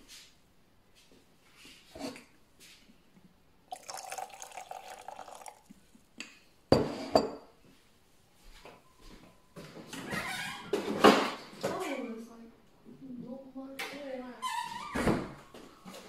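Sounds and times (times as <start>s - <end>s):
liquid pouring into glass: 3.7s - 6.1s.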